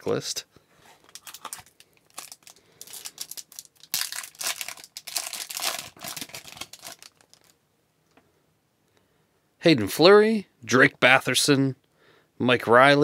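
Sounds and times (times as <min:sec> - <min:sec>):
wrapper tearing and crinkling: 0:01.0 - 0:07.6.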